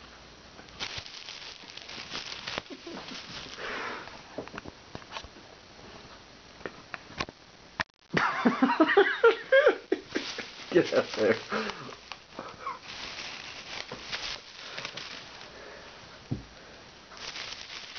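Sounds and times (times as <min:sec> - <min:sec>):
plastic bag crinkling: 0:00.6 - 0:04.7, 0:09.8 - 0:15.8, 0:17.1 - 0:17.9.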